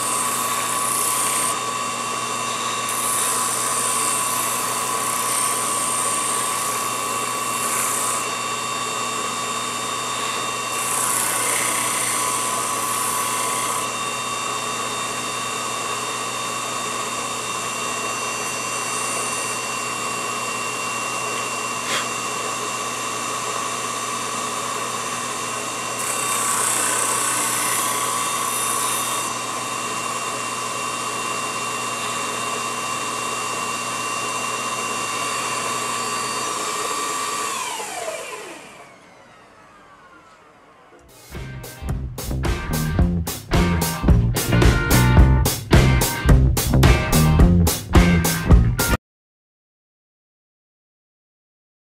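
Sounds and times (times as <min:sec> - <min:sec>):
small motor whining: 0:00.0 - 0:41.4.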